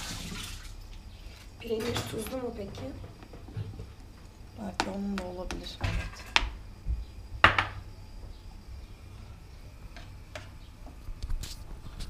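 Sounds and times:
kitchen utensils clacking: 0:01.7 - 0:03.0.

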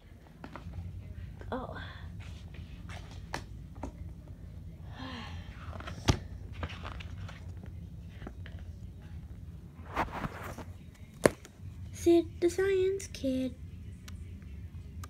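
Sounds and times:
steady low hum: 0:00.0 - 0:15.0
paper rustling: 0:05.8 - 0:08.6.

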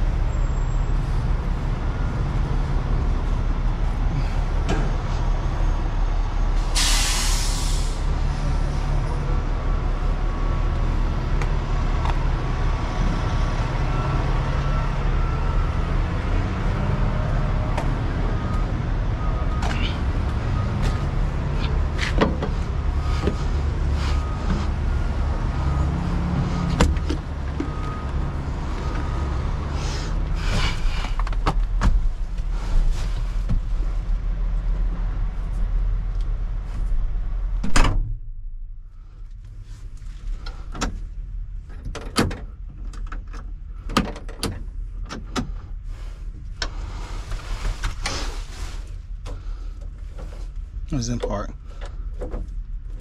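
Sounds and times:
diesel engine idling: 0:00.0 - 0:31.2.

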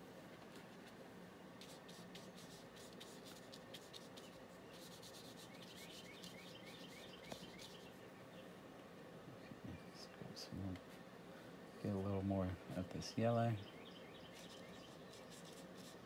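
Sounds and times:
paintbrush bristles on paper: 0:01.6 - 0:08.0, 0:14.3 - 0:16.0.

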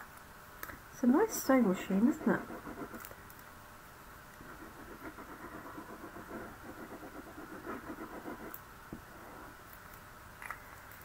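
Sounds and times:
glue nozzle rasping on card: 0:04.4 - 0:08.6.

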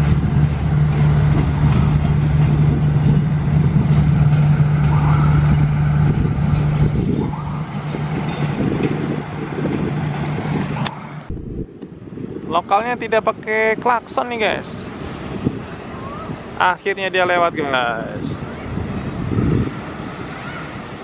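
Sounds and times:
diesel train engine droning: 0:00.0 - 0:12.4
train rumble: 0:00.0 - 0:21.0.

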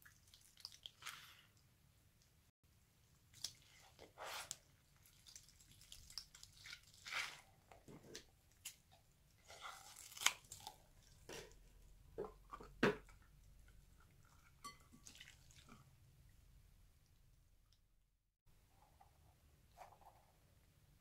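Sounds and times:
water beads squishing: 0:05.0 - 0:07.5.

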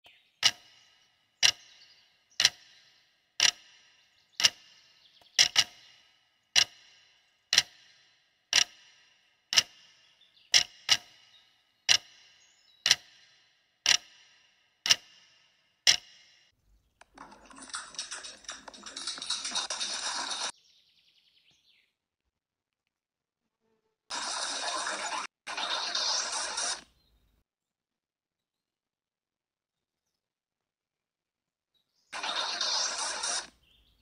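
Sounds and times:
sharp ringing ticks: 0:00.4 - 0:16.5.

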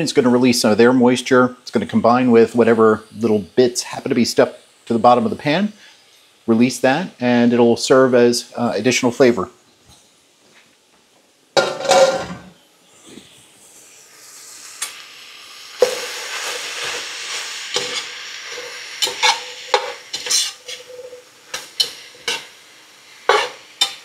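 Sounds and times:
meat and onions sizzling in a pan: 0:02.0 - 0:09.0, 0:11.5 - 0:24.0
utensil scraping a pan: 0:11.6 - 0:12.6, 0:17.7 - 0:22.5, 0:23.3 - 0:24.0.

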